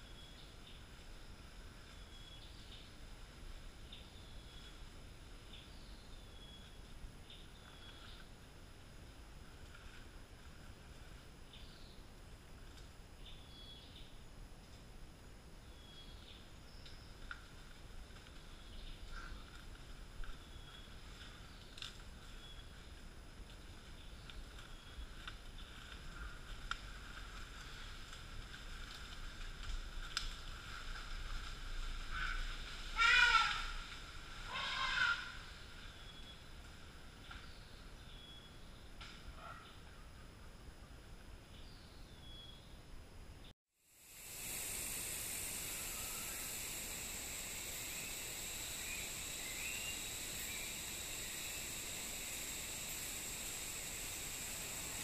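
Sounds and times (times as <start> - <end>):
constant hiss: 0.0 - 55.0
insect chorus: 0.0 - 55.0
faint chirps: 34.5 - 55.0.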